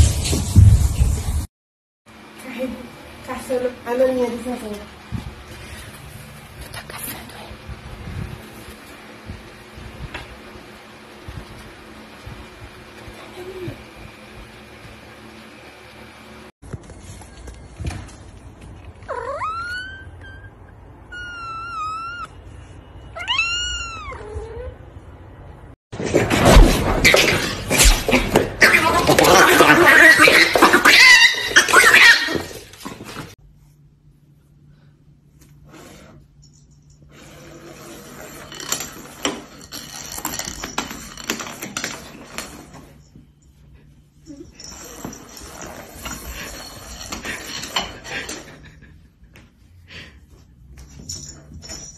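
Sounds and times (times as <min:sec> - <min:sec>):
cat meowing: 0:19.1 - 0:22.3, 0:23.2 - 0:24.8.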